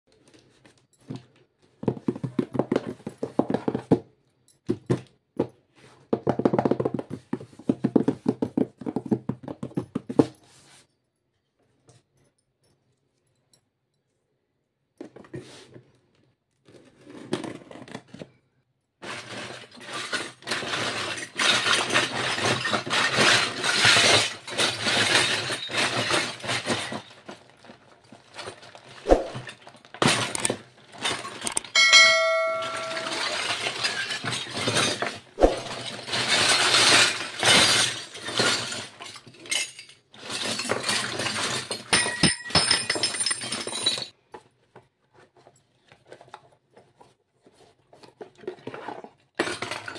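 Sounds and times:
toy pots clinking: 31.3 - 34.8
metal utensil ringing: 31.8 - 33.5.

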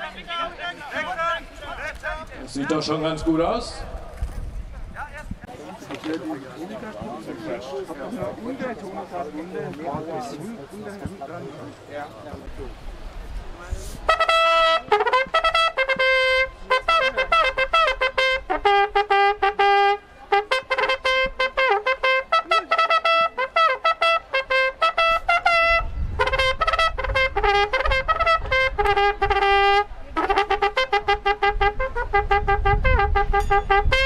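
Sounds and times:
trumpet signal call: 14.1 - 34.0.

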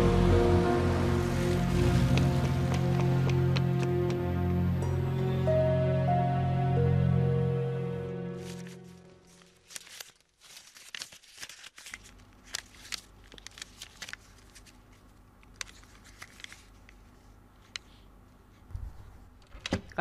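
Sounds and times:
soft sad background music: 0.0 - 9.6
rustling: 8.4 - 17.2.

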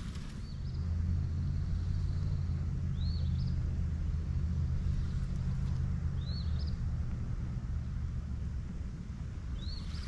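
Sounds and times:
songbird chirping: 0.0 - 7.2, 9.4 - 10.0
low outdoor rumble: 0.0 - 10.0.

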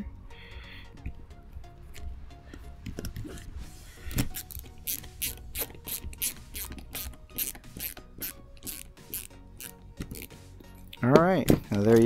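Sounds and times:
ratcheting screwdriver clicking: 4.2 - 10.3.

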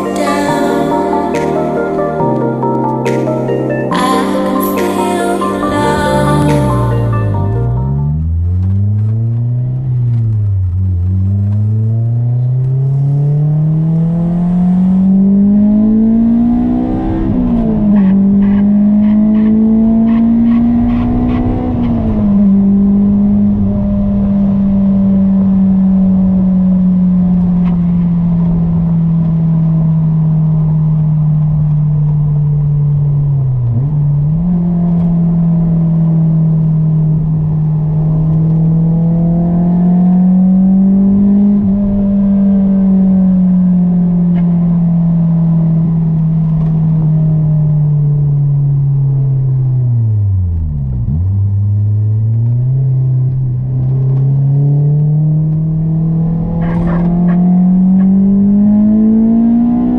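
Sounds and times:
car engine revving through gears: 5.6 - 59.9.

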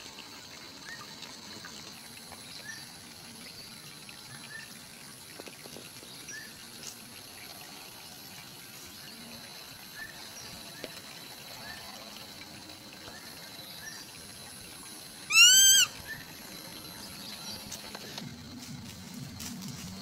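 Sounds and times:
loud rising and falling bird call: 15.3 - 16.2.

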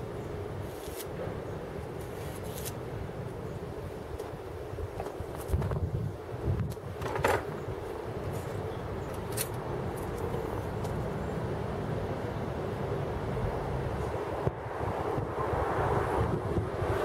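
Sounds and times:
wind rumble on microphone: 4.1 - 8.2, 12.2 - 17.0.

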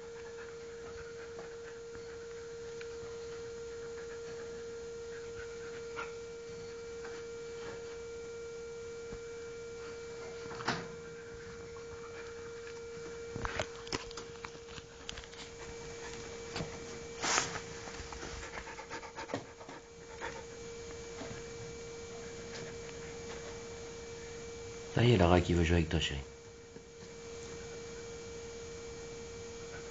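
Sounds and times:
dog panting: 0.0 - 6.7, 15.4 - 21.4
steady electrical hum: 0.0 - 29.9.

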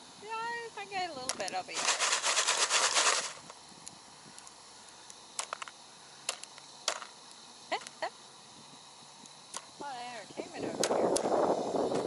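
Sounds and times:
popcorn kernels popping: 1.2 - 8.0
popcorn pan shaken rattling: 1.3 - 3.5.

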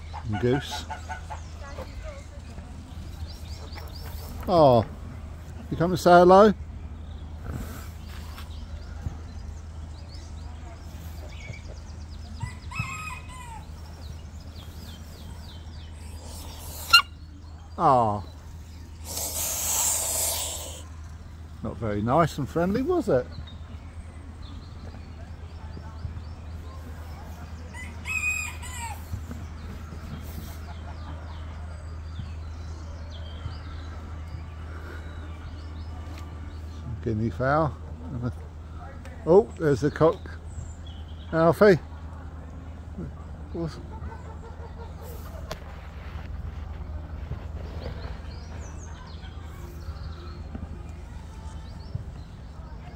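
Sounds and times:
faint bird calls: 10.6 - 21.4.

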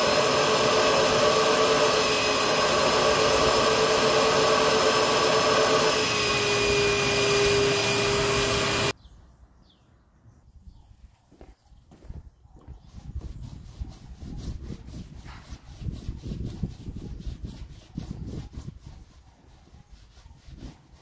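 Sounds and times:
extraction machine vacuum whine: 0.0 - 8.9.

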